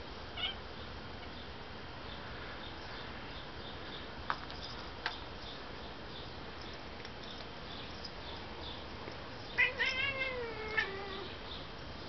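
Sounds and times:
cat chirping: 0.4s - 0.6s, 9.5s - 11.4s.

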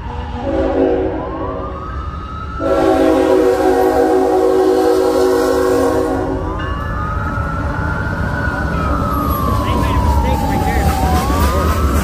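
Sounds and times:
siren wailing: 0.0s - 12.0s
locomotive air horn blast: 0.3s - 1.6s, 2.6s - 6.5s.

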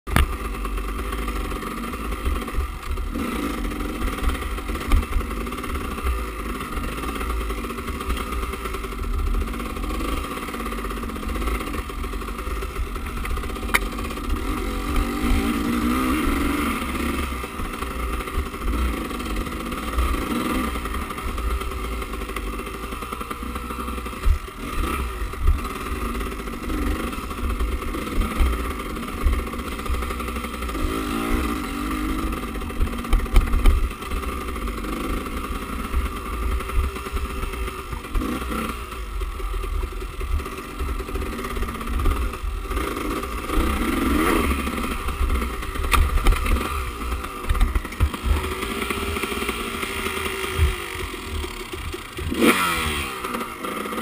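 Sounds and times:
sharp knocks from rough ground: 0.1s - 0.4s, 13.1s - 14.1s, 45.4s - 49.2s
motorcycle engine revving: 0.1s - 54.0s.

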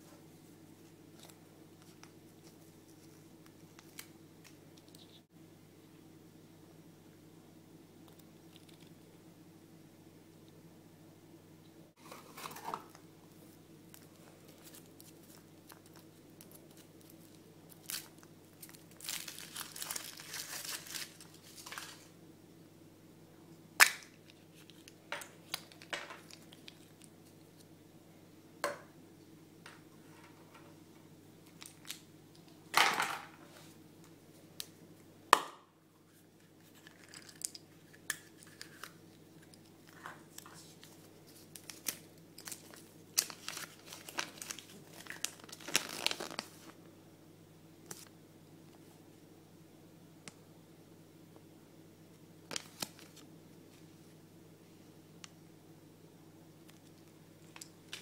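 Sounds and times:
faint low hum: 0.0s - 58.0s
wrappers crinkling and tearing: 13.9s - 22.1s, 40.3s - 46.8s.

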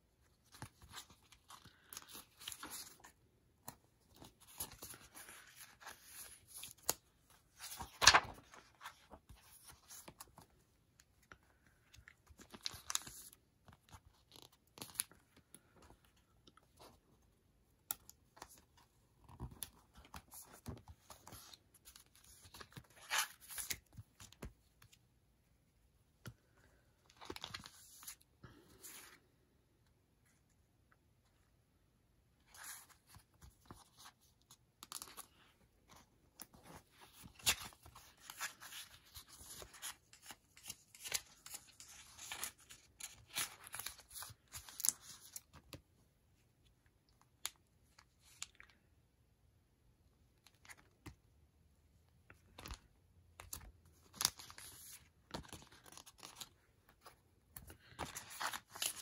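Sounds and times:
paper pages rustling: 0.3s - 10.5s, 32.5s - 45.8s, 53.4s - 59.0s
paper crackle: 4.2s - 10.4s.

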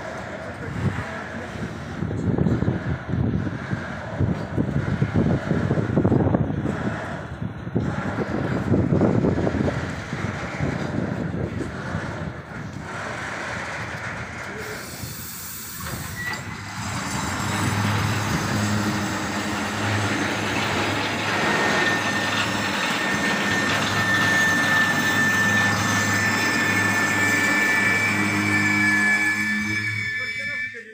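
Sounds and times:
train wheels rumbling and rattling: 0.0s - 30.9s
high wheel squeal: 7.9s - 30.9s.

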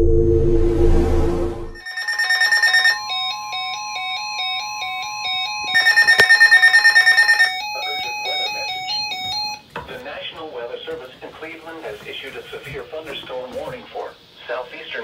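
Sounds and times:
rapid beeping: 1.8s - 9.6s
two-pitch electronic alarm tones: 1.8s - 9.6s.

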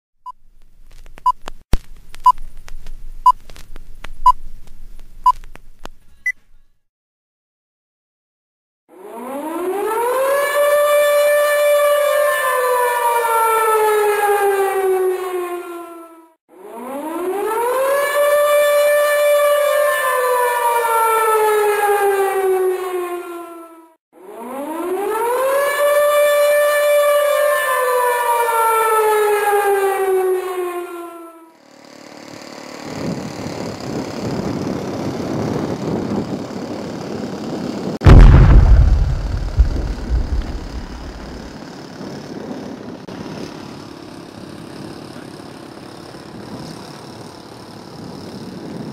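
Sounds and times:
air-raid siren wailing: 8.9s - 31.6s, 38.0s - 41.5s
sudden loud burst: 38.0s - 41.5s
steady rushing noise: 38.1s - 41.5s.

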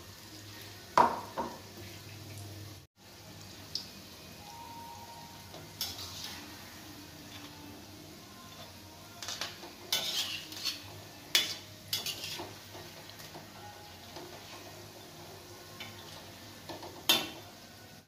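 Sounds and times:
deep-frying sizzle: 0.0s - 18.0s
metal spoon clinking on pan: 8.6s - 12.5s.

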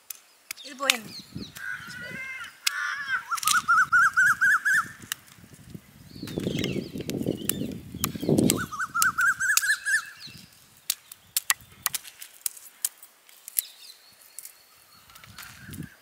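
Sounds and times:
nuts cracking and popping in fire: 0.0s - 1.8s, 2.4s - 16.0s
bird trilling: 0.6s - 5.0s, 6.4s - 10.3s.

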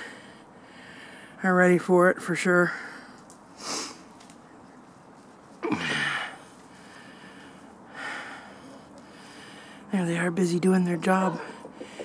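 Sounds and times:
person breathing close: 0.0s - 1.4s, 5.6s - 9.9s.

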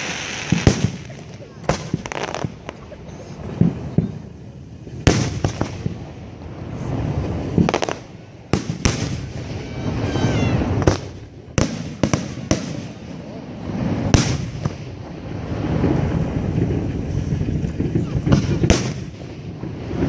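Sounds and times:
firework shells booming: 0.0s - 20.0s
rumbling and crackling: 0.0s - 20.0s.

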